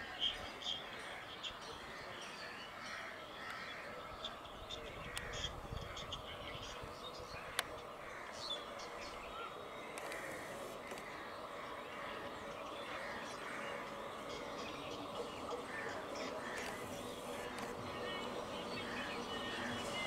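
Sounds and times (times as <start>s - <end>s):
birds chirping: 0.2s - 20.0s
steady background hum: 3.6s - 20.0s.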